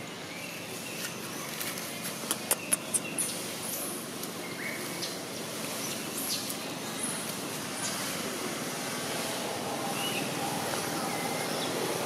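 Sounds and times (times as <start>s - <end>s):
steady outdoor hiss: 0.0s - 12.0s
dry leaves crunching: 0.8s - 2.3s.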